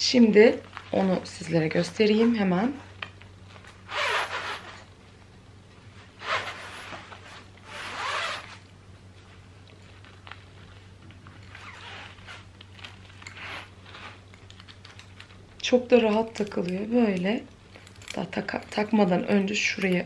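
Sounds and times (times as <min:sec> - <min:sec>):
belt sliding through belt loops: 0:06.2 - 0:08.6, 0:11.4 - 0:20.0.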